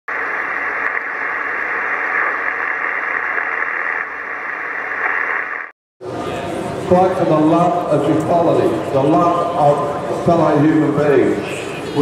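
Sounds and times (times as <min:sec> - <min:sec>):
electronic static hiss: 0:00.1 - 0:05.8.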